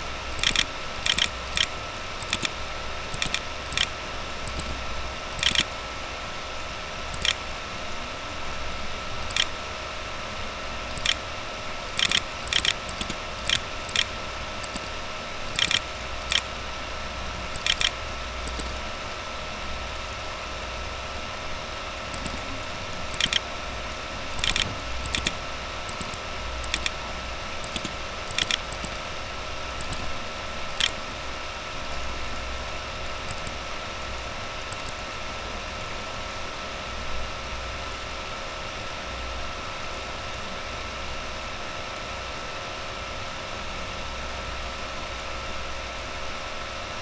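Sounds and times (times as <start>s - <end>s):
steady electrical hum: 0.0s - 47.0s
mouse button clicking: 0.4s - 2.5s, 3.2s - 3.9s, 7.2s - 7.4s, 11.0s - 11.2s, 15.6s - 16.4s, 17.6s - 17.9s, 22.1s - 22.4s, 23.1s - 23.4s, 24.4s - 26.9s, 27.6s - 29.0s.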